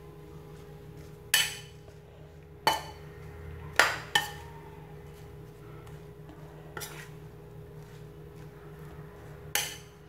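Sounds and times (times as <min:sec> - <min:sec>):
metal spoon clinking ceramic bowl: 0:03.8 - 0:04.4.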